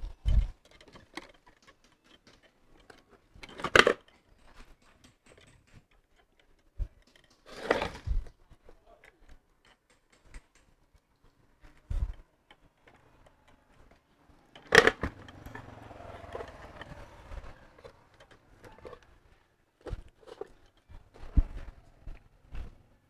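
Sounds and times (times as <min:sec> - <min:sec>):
rustling and small clicks: 0:00.0 - 0:22.8
metal motor housing knocking: 0:04.6 - 0:07.5.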